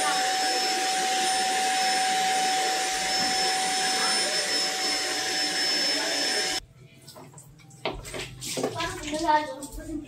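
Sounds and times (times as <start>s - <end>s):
handheld vacuum cleaner whining: 0.0s - 6.6s.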